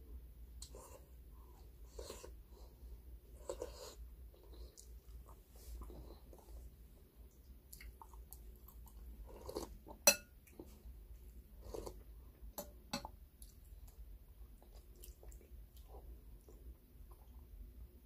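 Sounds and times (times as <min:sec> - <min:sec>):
chewing: 0:03.3 - 0:06.7, 0:07.3 - 0:10.9, 0:11.6 - 0:12.4, 0:13.4 - 0:17.6
metal spoon clinking glass bowl: 0:10.1 - 0:10.3.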